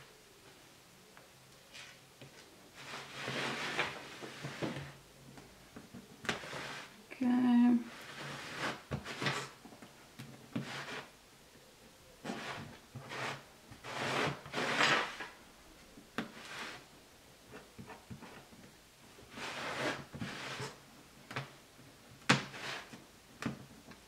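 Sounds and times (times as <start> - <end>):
lino cutter scratching lino: 12.2 - 15.3.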